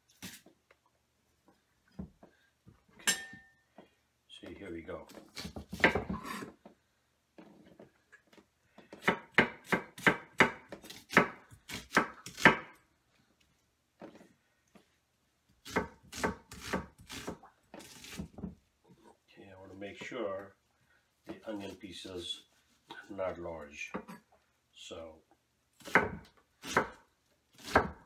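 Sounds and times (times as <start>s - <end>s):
knife chopping onion on board: 5.1s - 6.3s, 9.0s - 12.8s, 15.6s - 18.5s, 25.8s - 27.0s, 27.6s - 28.0s.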